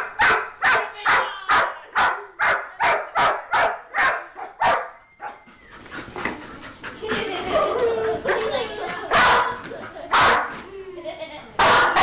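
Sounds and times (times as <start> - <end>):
dog barking: 0.0 - 5.4, 9.1 - 10.6, 11.6 - 12.0.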